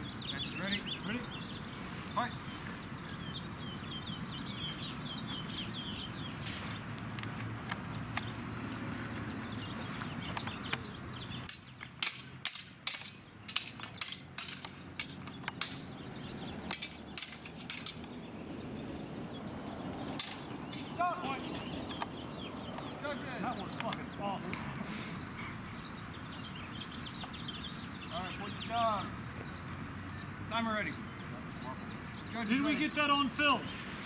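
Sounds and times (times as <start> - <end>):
steel swords clashing: 11.5 - 15.8, 16.7 - 18.1.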